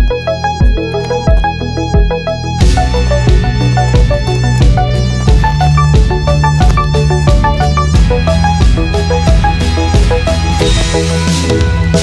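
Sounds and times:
melody over bass line: 0.0 - 12.0
drum beat: 0.6 - 12.0.

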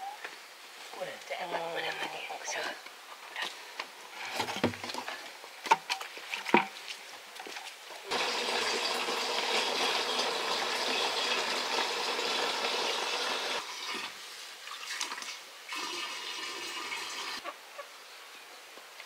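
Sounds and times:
water pouring: 8.1 - 17.4.

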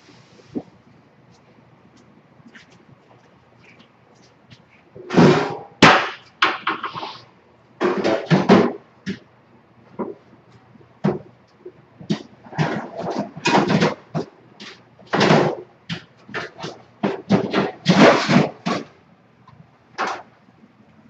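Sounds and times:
containers knocking and clattering: 12.0 - 18.9.

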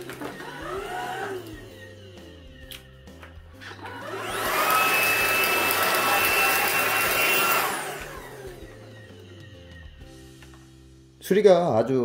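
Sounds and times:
vacuum cleaner whining: 0.0 - 2.4, 3.6 - 10.1.

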